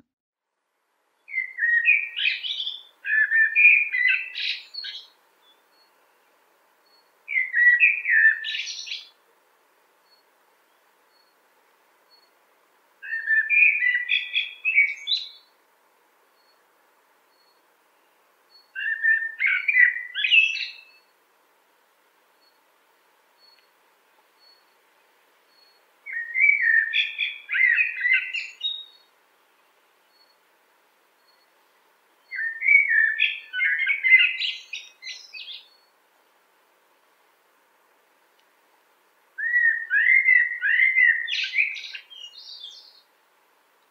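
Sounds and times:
blackbird singing: 1.3s - 6.0s, 6.9s - 9.2s, 13.0s - 15.5s, 18.5s - 21.1s, 25.5s - 29.1s, 32.2s - 35.9s, 39.4s - 43.0s.

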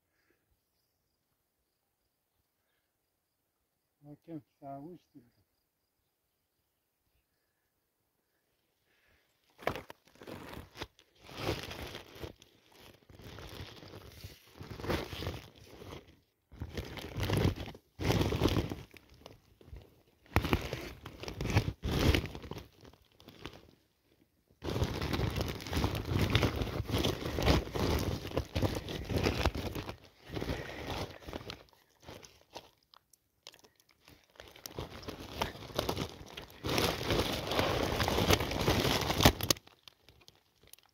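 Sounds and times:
plastic sack crinkling: 9.4s - 23.8s, 24.6s - 40.9s.

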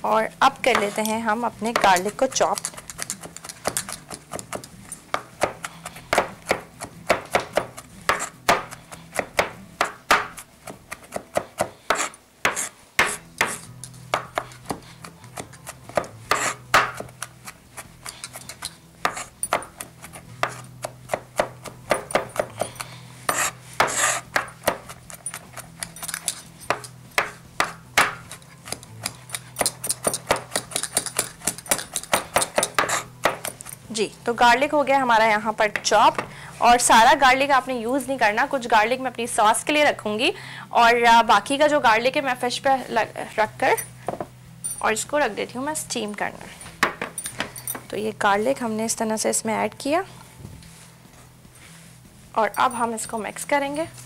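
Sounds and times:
knife chopping on cutting board: 1.7s - 17.3s, 19.0s - 25.0s, 26.7s - 33.6s.

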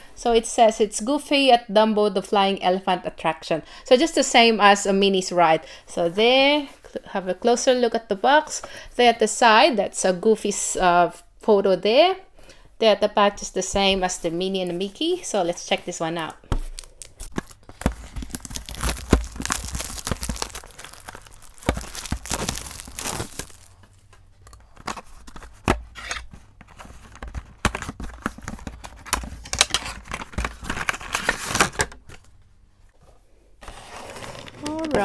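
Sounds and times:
plastic packaging crinkling: 16.6s - 24.0s, 27.7s - 32.3s
cardboard tearing: 16.7s - 23.8s, 29.5s - 32.0s, 33.6s - 35.0s.

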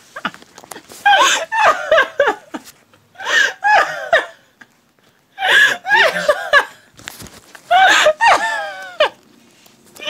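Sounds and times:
high-pitched laughter: 7.7s - 9.2s.

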